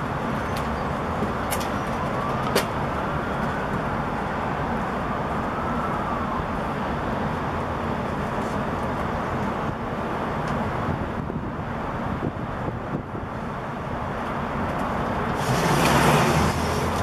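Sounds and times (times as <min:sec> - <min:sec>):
city traffic noise: 0:00.0 - 0:17.0
faint distant siren: 0:01.6 - 0:08.2.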